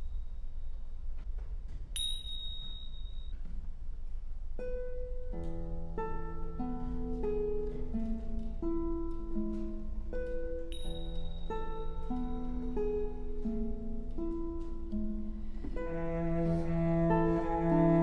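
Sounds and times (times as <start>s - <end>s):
small hand cymbals ringing: 2.0s - 3.4s, 10.7s - 12.2s
plucked guitar melody: 4.6s - 18.0s.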